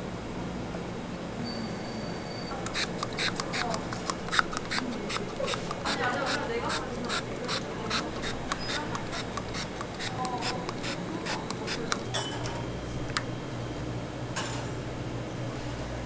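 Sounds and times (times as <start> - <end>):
low kitchen hum: 0.0 - 16.0
metal tool scraping and clicking: 2.5 - 12.1.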